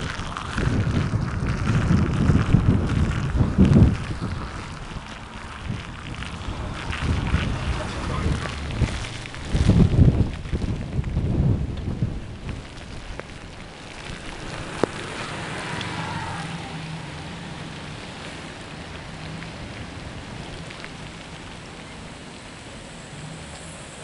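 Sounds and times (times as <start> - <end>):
bicycle on wet road: 0.0 - 24.0
rain hissing: 0.0 - 24.0.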